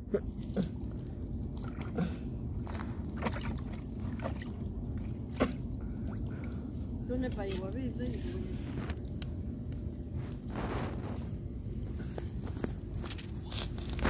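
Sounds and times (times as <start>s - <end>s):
stick sloshing in water and mud: 0.2s - 6.7s.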